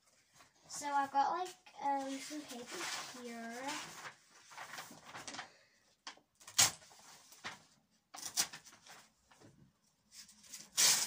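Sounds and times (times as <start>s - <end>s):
paper rustling: 0.2s - 5.7s, 6.6s - 9.5s.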